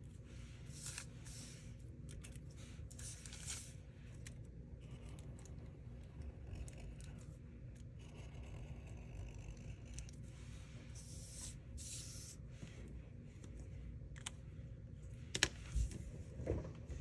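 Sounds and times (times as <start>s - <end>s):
marker scratching on paper: 8.0s - 12.5s.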